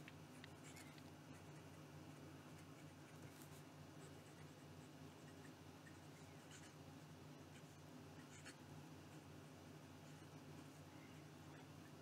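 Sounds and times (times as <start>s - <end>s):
fountain pen scratching on paper: 2.5s - 6.8s, 7.5s - 9.2s.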